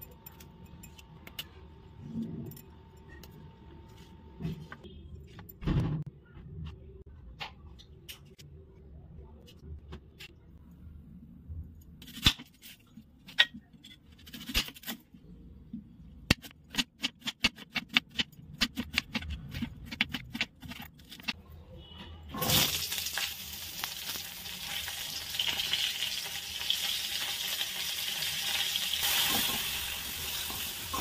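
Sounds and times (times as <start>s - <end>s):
beans sizzling in hot oil: 22.4s - 31.0s.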